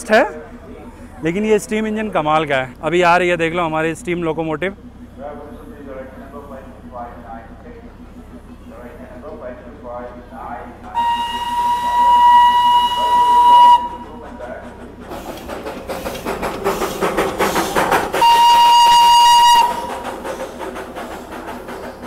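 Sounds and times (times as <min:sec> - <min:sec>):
steam locomotive hissing and chuffing: 0:00.0 - 0:22.0
steam whistle blasts: 0:10.9 - 0:14.2, 0:18.2 - 0:20.0.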